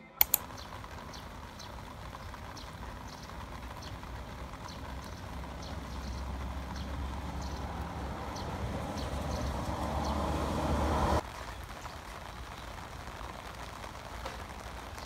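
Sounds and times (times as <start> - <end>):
sharp clicks: 0.2 - 0.7
rain falling into puddle: 0.2 - 15.0.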